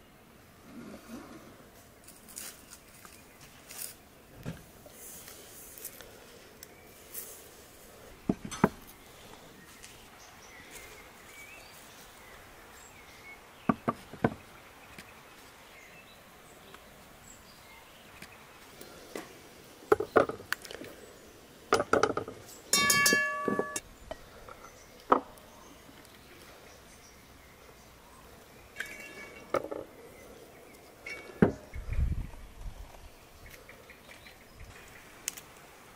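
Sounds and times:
cookware and dishes clinking: 21.8 - 23.8, 28.8 - 29.6.

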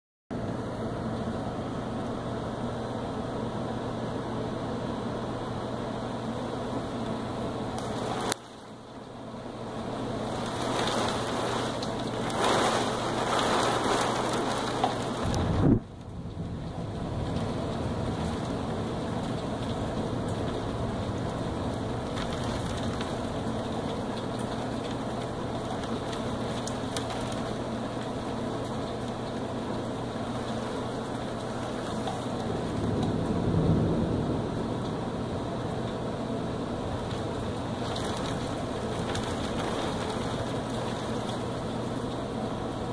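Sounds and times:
heavy rain falling: 5.2 - 42.9
low rumble of thunder: 9.5 - 26.9, 31.1 - 41.8.

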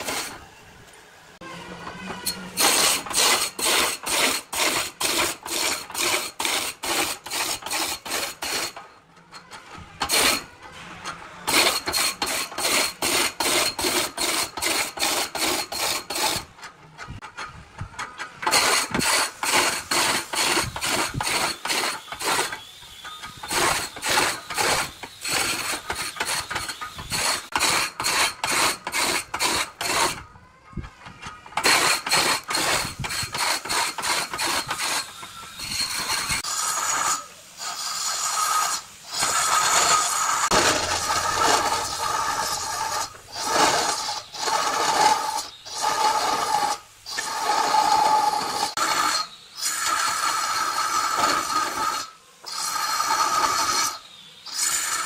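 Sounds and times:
power tool cutting with squeal: 0.0 - 0.7, 1.4 - 55.0
rough scraping strokes: 2.0 - 8.9, 18.4 - 30.3, 31.2 - 54.0.

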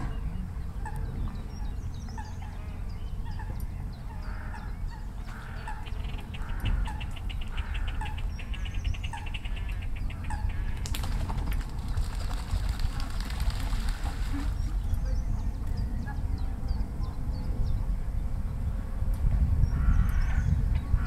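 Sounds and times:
grebes calling: 0.0 - 11.3
rapid rattling bird trill: 0.2 - 15.6.

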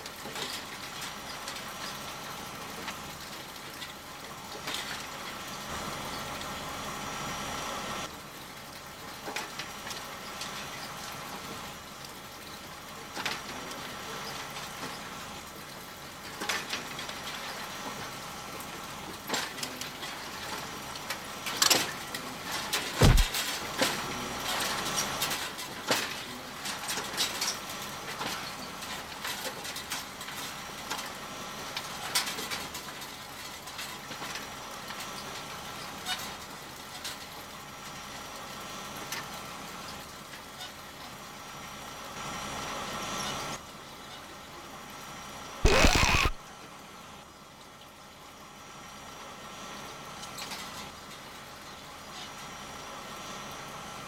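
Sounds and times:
foley knocks rustles and clicks: 22.7 - 24.0
heavy thump: 23.0 - 23.3.

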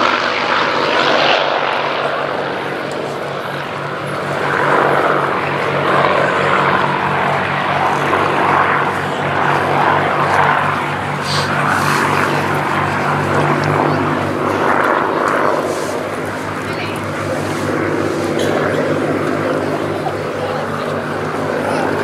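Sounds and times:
propeller aircraft engines: 0.0 - 22.0.

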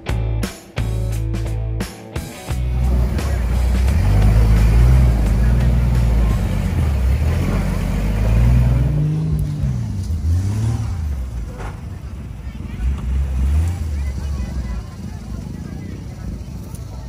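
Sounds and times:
buggy engine revving: 0.0 - 17.0.

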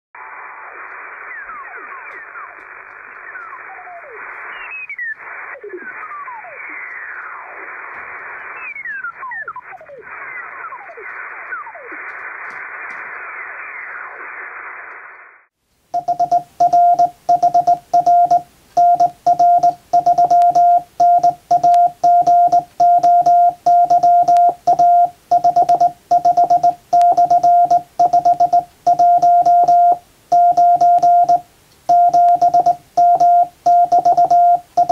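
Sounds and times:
shortwave receiver hiss: 0.2 - 34.9
morse code beeping: 16.0 - 34.9.

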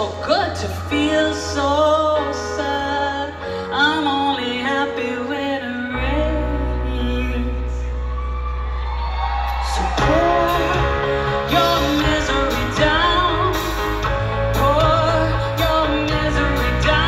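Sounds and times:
female lead vocal: 0.0 - 8.0, 9.6 - 17.0
live rock band playing: 9.1 - 17.0.

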